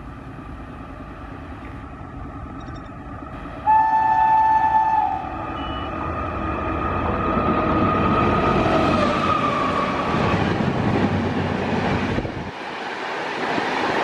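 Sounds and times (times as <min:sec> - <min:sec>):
wheels rumbling on rail: 0:00.0 - 0:14.0
locomotive horn blast: 0:03.6 - 0:06.0.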